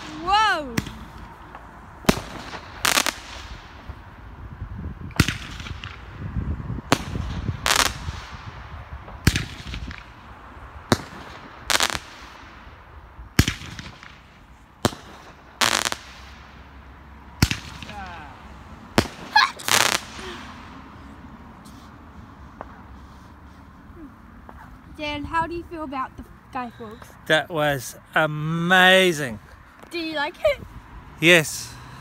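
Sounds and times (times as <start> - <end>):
firework shots banging and bursting: 0.0 - 3.8, 5.1 - 6.1, 6.9 - 10.2, 10.9 - 12.7, 13.3 - 16.6, 17.4 - 18.3, 18.9 - 20.5.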